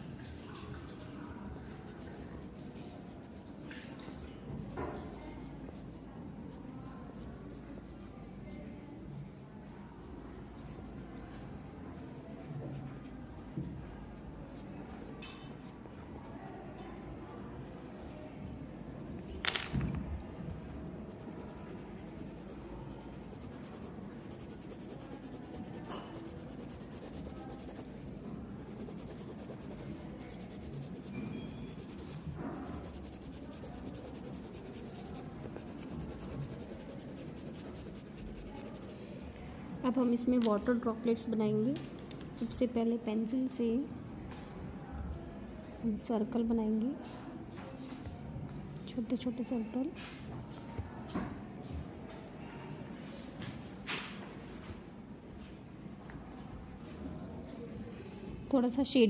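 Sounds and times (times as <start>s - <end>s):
pencil scratching on paper: 1.7s - 3.6s, 4.6s - 9.4s, 20.9s - 38.9s.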